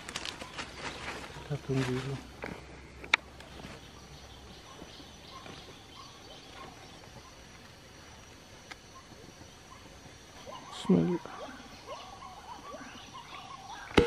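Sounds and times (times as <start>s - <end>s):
insect whine: 0.0s - 14.0s
soft bird chirps: 3.0s - 14.0s.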